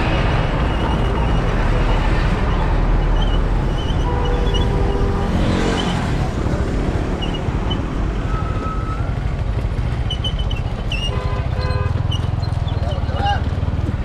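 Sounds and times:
motorcycle engines running: 0.0 - 14.0.

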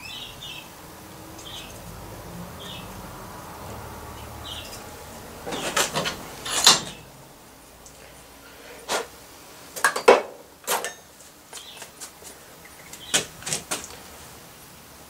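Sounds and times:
metal tools knocking and clicking: 5.5 - 7.0.

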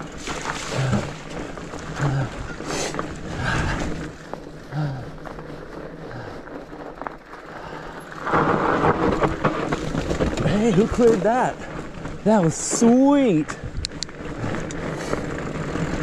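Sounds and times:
bike tyres crunching on trail: 0.0 - 16.0
wind on microphone: 13.5 - 15.2.

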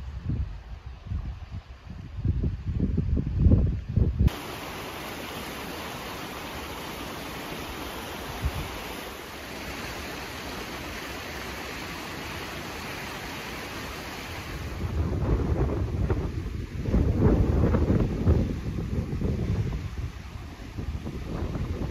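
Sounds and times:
wind buffeting microphone: 0.0 - 4.8, 8.2 - 9.0, 14.4 - 21.9
distant waterfalls rushing: 4.3 - 21.9.

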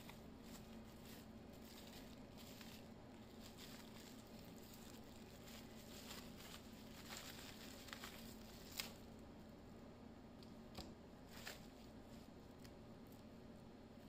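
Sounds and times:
faint rustling: 0.0 - 9.1.

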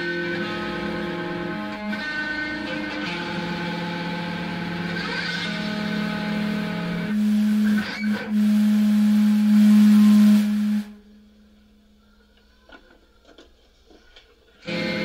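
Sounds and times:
sustained amplified instrument note: 5.4 - 11.1
hiss: 7.1 - 10.9
faint clicks and taps: 12.3 - 14.6.

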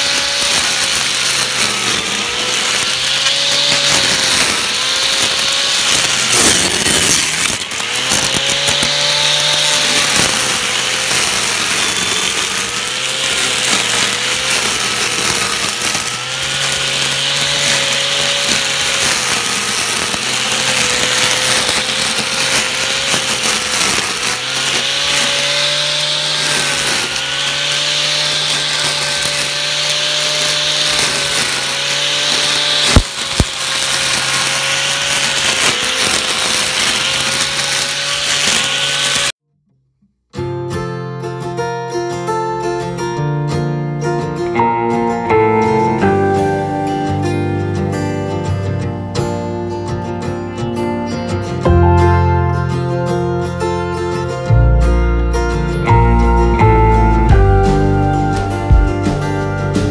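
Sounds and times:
electric string trimmer humming: 0.0 - 39.4, 44.2 - 49.3, 51.6 - 59.9
sharp crack: 0.0 - 39.4.

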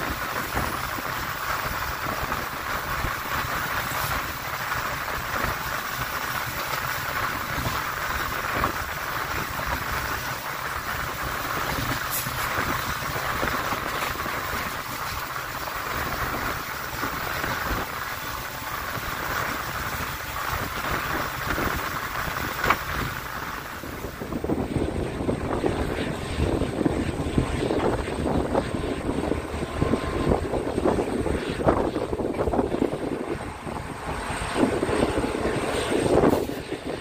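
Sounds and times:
train rolling on track: 0.0 - 37.0.

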